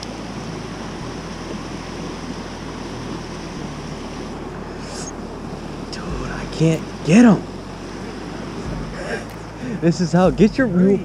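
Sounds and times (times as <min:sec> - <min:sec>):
stream rushing through rapids: 0:00.0 - 0:11.0.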